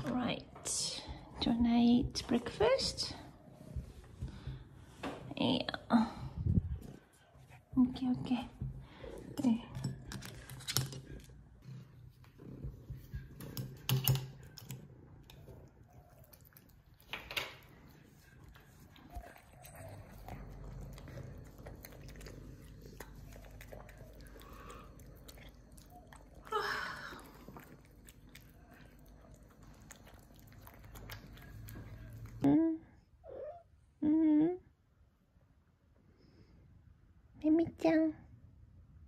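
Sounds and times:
cat chewing wet food: 0:11.6 - 0:32.4.

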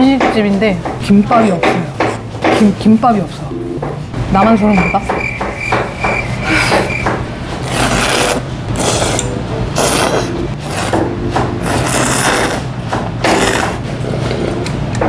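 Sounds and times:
person slurping noodles: 0:07.6 - 0:11.0, 0:11.6 - 0:12.7, 0:13.3 - 0:14.6.

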